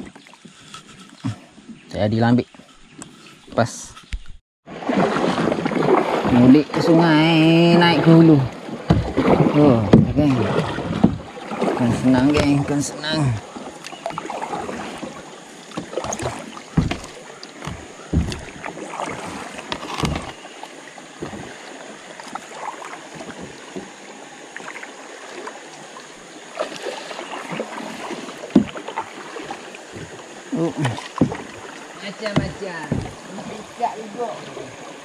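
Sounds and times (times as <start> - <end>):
paddle strokes splashing in water: 0.0 - 1.5, 4.7 - 35.0
irregular knocks and thumps: 8.8 - 11.4, 14.9 - 20.4, 21.2 - 21.6, 28.5 - 33.3.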